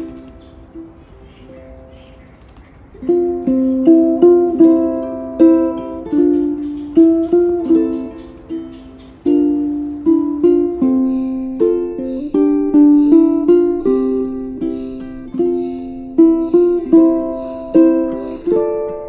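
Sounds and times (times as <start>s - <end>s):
ukulele melody: 0.0s - 1.9s, 2.5s - 19.0s.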